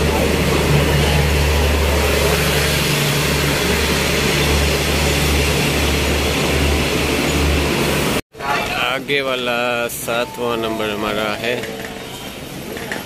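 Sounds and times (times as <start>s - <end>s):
train diesel engine idling: 0.0s - 8.2s.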